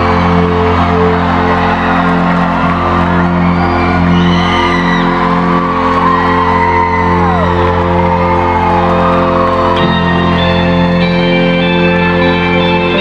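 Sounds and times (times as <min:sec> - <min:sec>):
fans whooping and screaming: 0:00.0 - 0:13.0
live band music: 0:07.5 - 0:13.0.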